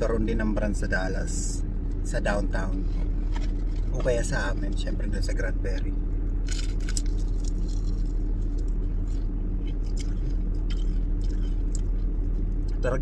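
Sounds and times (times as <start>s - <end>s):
car engine idling: 0.0s - 13.0s
crunchy bites into fried chicken: 6.3s - 12.8s
chewing: 6.5s - 12.8s.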